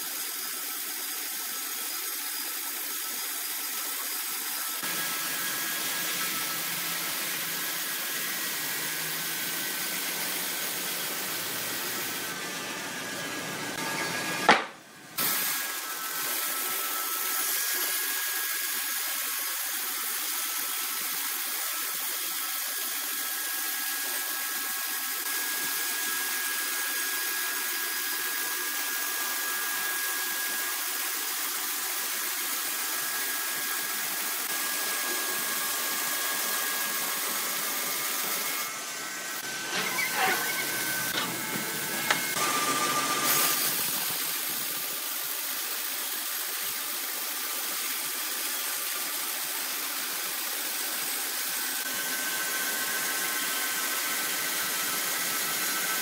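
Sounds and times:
bandsaw blade sawing wood: 3.6 - 31.0, 31.8 - 44.9.

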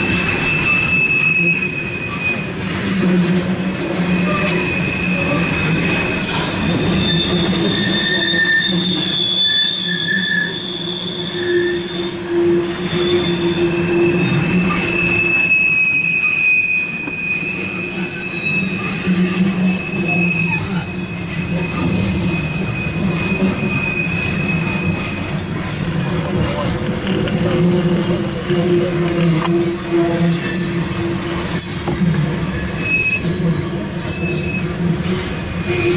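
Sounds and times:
train wheels squealing: 0.0 - 3.0, 4.0 - 25.8, 29.8 - 31.0, 32.6 - 33.4, 34.0 - 35.9
freight cars rumbling: 0.0 - 35.9.

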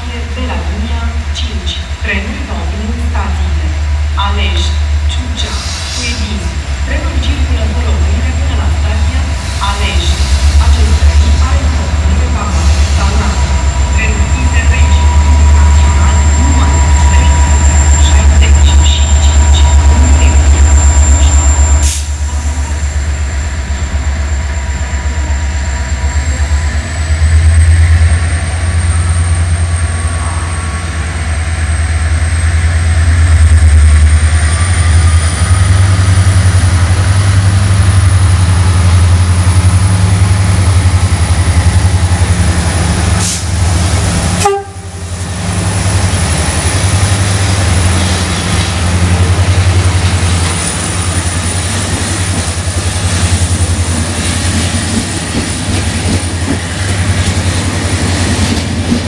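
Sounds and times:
diesel locomotive engine drone: 0.0 - 59.0.

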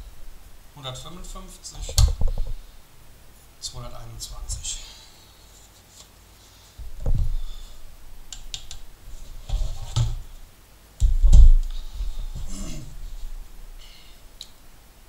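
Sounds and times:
objects thumping on a table: 1.9 - 2.6.

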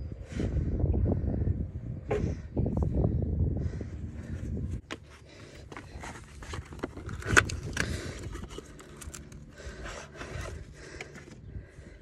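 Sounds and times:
clicks and scraping of handling parts: 4.8 - 11.4.

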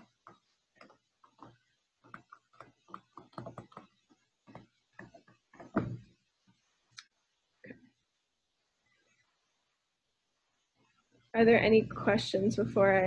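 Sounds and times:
stylus tapping on tablet screen: 0.0 - 7.0.

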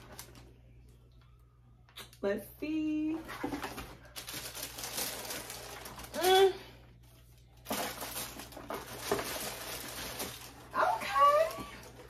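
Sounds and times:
tissue paper crinkling: 3.2 - 12.0.

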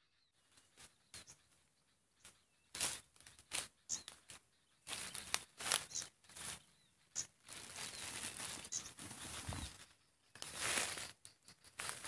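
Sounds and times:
small birds chirping: 0.0 - 12.0
dry leaves crackling and rustling: 2.7 - 6.6, 7.4 - 9.8, 10.4 - 11.2, 11.8 - 12.0.

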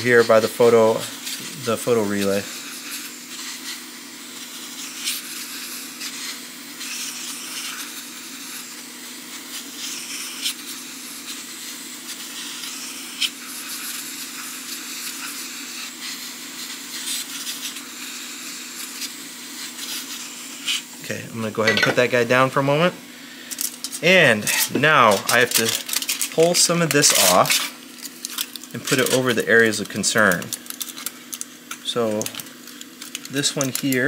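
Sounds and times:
hot air gun hissing: 0.0 - 21.1, 21.7 - 27.8
low fan hum: 0.0 - 34.0.

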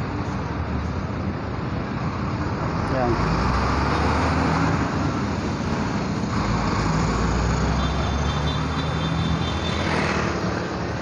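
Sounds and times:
road noise: 0.0 - 11.0
vehicle engines running: 0.0 - 11.0.

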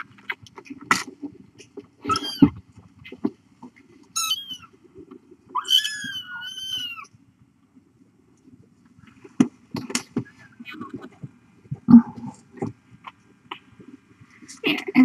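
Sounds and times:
kitten meowing: 2.1 - 2.5, 4.2 - 4.7, 5.6 - 7.1.

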